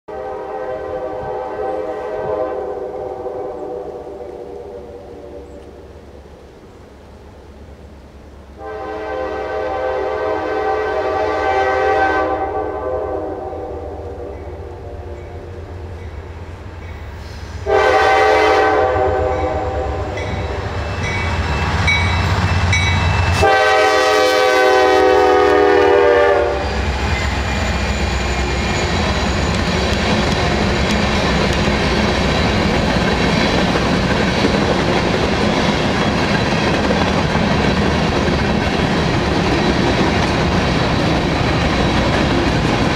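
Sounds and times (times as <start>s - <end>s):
locomotive chord horn blasts: 0.1s - 5.6s, 8.6s - 15.9s, 17.4s - 21.2s, 22.1s - 26.8s
locomotive engine rumble: 25.2s - 42.9s.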